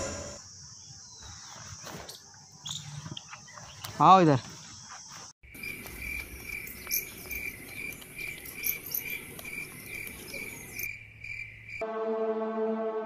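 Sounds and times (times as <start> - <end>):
insects chirping: 0.0 - 11.8
background music: 11.8 - 13.0.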